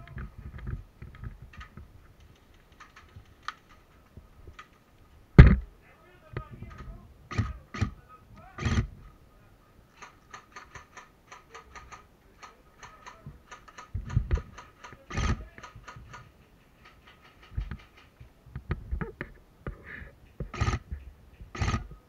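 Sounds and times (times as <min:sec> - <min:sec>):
loud knocks: 0:05.4 - 0:05.6
airsoft gunfire clicking shots: 0:10.0 - 0:16.2, 0:21.5 - 0:21.9.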